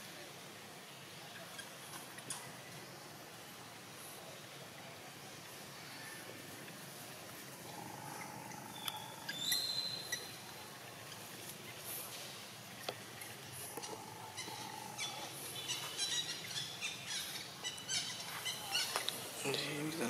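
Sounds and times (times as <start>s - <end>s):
faint steady hum: 0.0s - 20.0s
bird whistle: 8.8s - 10.3s.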